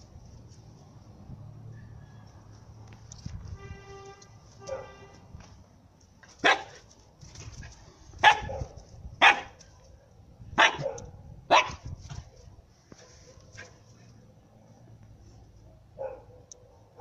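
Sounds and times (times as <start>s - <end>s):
husky barking: 4.7s - 5.0s, 6.4s - 6.8s, 8.2s - 9.6s, 10.6s - 11.8s, 15.7s - 17.0s.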